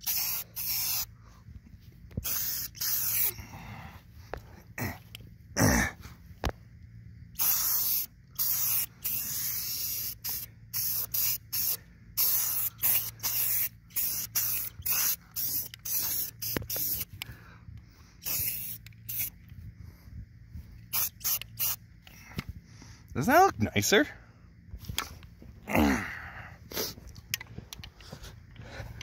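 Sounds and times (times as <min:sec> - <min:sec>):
spray paint can hissing: 0:00.0 - 0:01.2, 0:02.2 - 0:03.3, 0:07.3 - 0:17.2, 0:18.2 - 0:19.4, 0:20.8 - 0:21.8.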